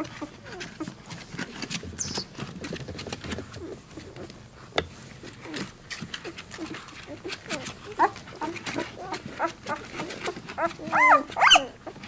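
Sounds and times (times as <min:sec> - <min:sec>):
puppies squeaking: 0:01.9 - 0:02.4, 0:05.4 - 0:12.0.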